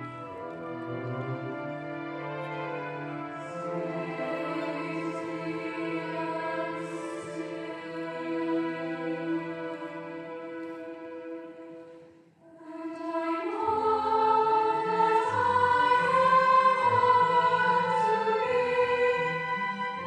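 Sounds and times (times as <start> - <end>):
orchestra playing: 0.0 - 12.0, 13.6 - 20.0
youth choir singing: 3.7 - 10.5, 12.5 - 20.0.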